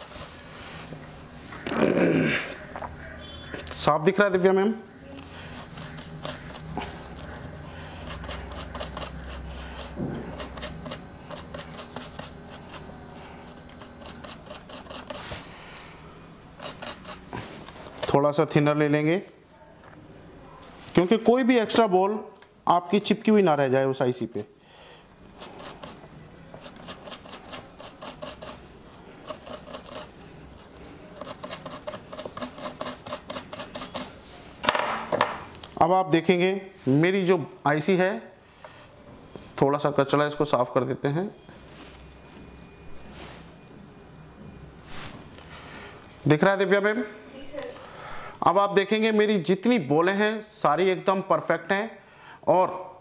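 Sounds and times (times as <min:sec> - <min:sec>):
scratchy rubbing strokes: 0:00.0 - 0:01.6, 0:05.3 - 0:15.6, 0:16.5 - 0:18.0, 0:25.3 - 0:34.4.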